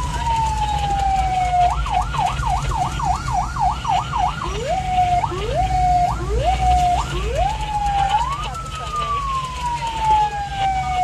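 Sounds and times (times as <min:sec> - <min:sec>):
ambulance siren: 0:00.0 - 0:11.0
engine and road rumble: 0:00.0 - 0:11.0.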